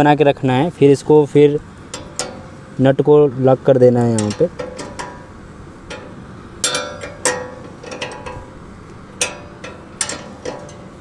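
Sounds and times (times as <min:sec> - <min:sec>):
spanners clinking on metal: 0:01.9 - 0:02.7, 0:04.1 - 0:11.0.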